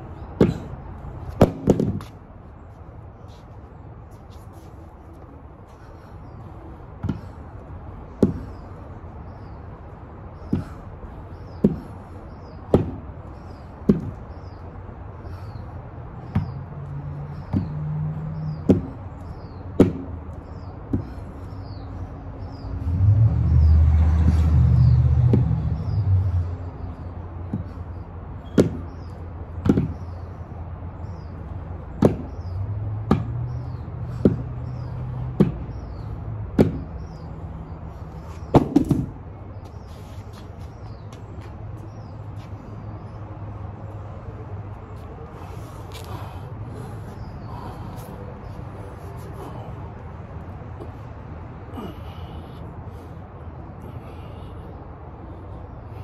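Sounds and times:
birds chirping: 0.0s - 56.0s
passing vehicle rumbling: 6.4s - 56.0s.

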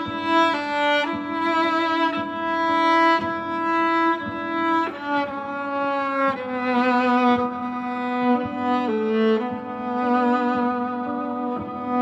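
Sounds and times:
looped viola parts: 0.0s - 12.0s
viola bowing sustained notes: 0.0s - 12.0s.

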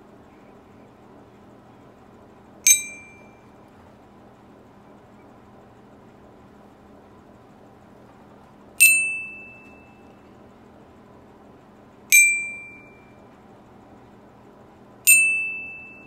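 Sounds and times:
glockenspiel notes ringing: 15.1s - 16.0s.

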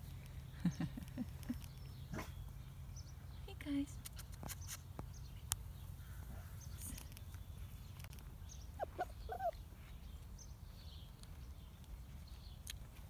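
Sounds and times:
puppy whining: 8.8s - 9.6s.

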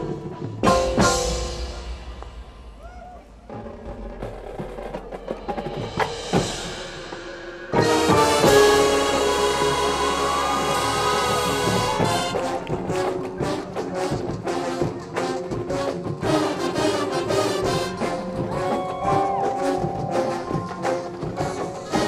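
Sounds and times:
marching band playing: 0.0s - 22.0s
held brass chord: 7.7s - 18.4s.

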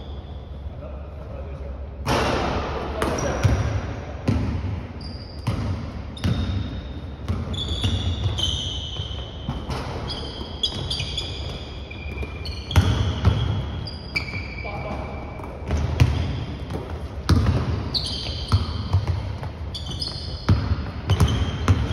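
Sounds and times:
sneakers squeaking on floor: 0.0s - 0.8s, 2.9s - 21.9s
basketball bouncing on hardwood floor: 5.4s - 6.6s, 7.2s - 13.7s, 15.4s - 21.9s.

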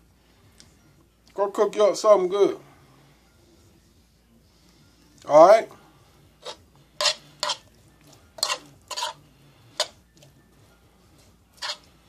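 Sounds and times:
utensil scraping food in a pan: 6.4s - 10.2s, 11.2s - 12.0s.

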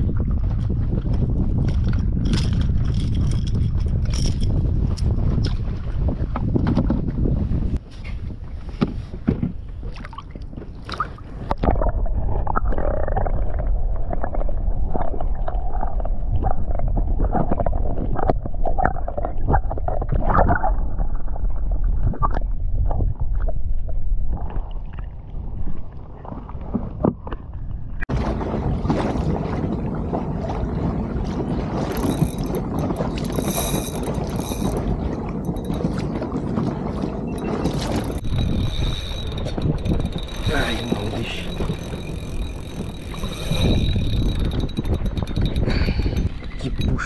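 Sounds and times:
underwater rumble and gurgling: 0.0s - 47.0s
water noise around boat: 0.0s - 47.0s
wind: 0.0s - 47.0s
underwater clicks: 31.9s - 36.1s, 37.3s - 47.0s.

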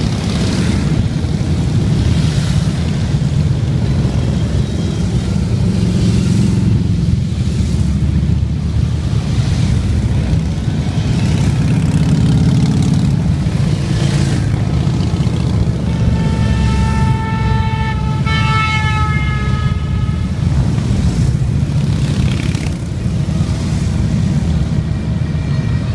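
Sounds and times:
motorcycles riding past: 0.0s - 25.9s.

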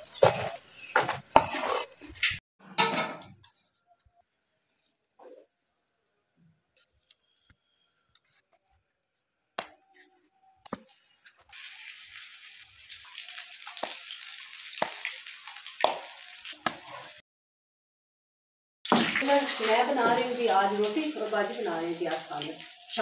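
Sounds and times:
food sizzling in oil: 0.0s - 2.4s, 10.8s - 17.2s, 18.9s - 23.0s.

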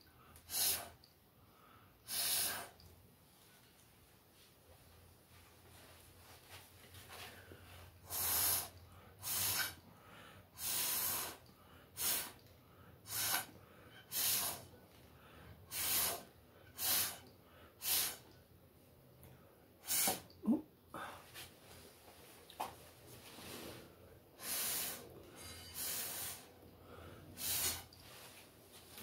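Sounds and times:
puffs of blown air: 0.4s - 1.1s, 2.0s - 2.8s, 8.0s - 12.4s, 13.0s - 14.8s, 15.6s - 18.3s, 19.8s - 20.4s, 23.3s - 28.4s.

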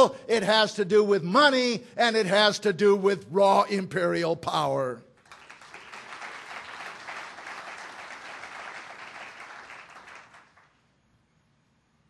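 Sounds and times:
audience applauding: 5.2s - 10.8s.

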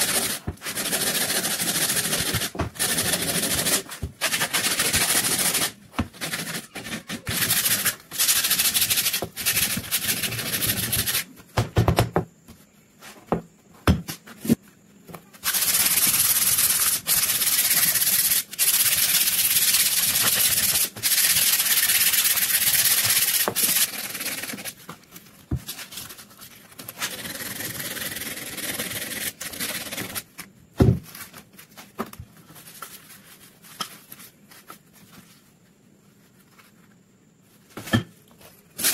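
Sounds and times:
sandpaper scratching on wood: 0.0s - 11.3s, 15.4s - 24.8s.

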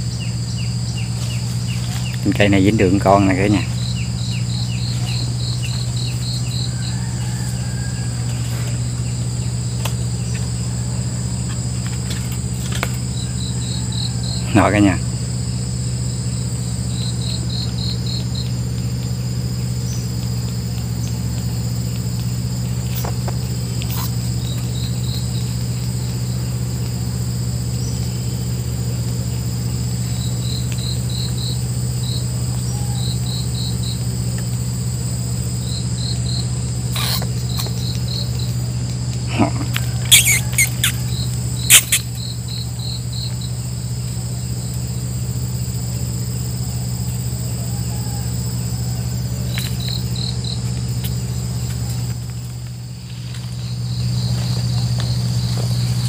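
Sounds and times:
crickets trilling: 0.0s - 56.0s
high insect drone: 0.0s - 56.0s
low hum: 0.0s - 56.0s
sharp clicks: 36.9s - 42.2s.

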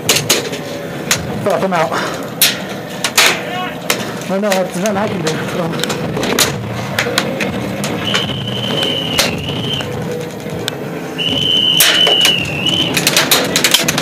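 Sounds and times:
referee's whistle blasts: 8.0s - 9.8s, 11.2s - 12.9s.

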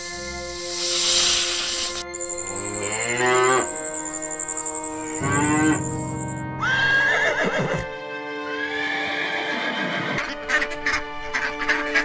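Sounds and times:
background music: 0.0s - 12.0s
horse whinnying: 6.6s - 7.9s, 8.6s - 10.4s.

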